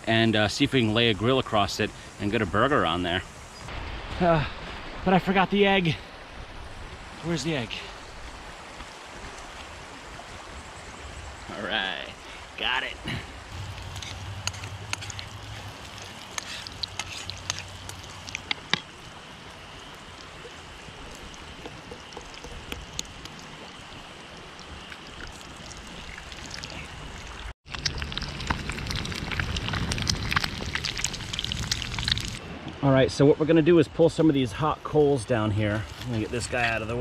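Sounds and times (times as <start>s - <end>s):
food sizzling in pan: 13.5s - 19.1s.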